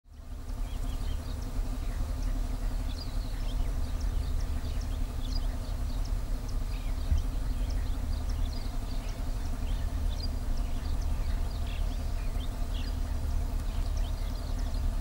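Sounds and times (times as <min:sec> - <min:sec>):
bird chirps: 0:00.1 - 0:15.0
steady low rumble: 0:00.1 - 0:15.0.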